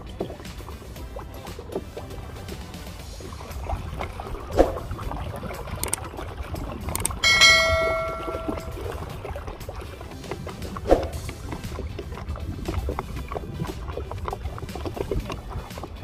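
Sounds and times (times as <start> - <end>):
wind: 0.0 - 16.0
sharp click: 7.0 - 7.2
bright bell chime ding: 7.2 - 8.9.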